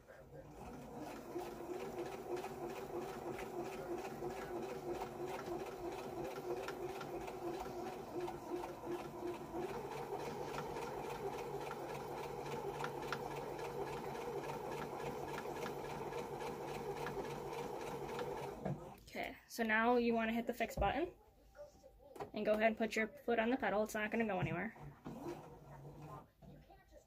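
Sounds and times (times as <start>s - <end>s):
sewing machine motor hum: 0.2s - 19.1s, 24.7s - 26.2s.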